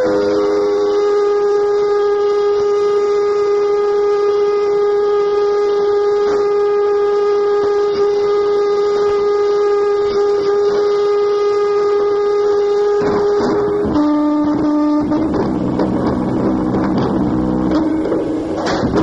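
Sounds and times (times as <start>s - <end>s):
constant noise hiss: 0.0s - 19.0s
loud electronic drone tone: 0.0s - 19.0s.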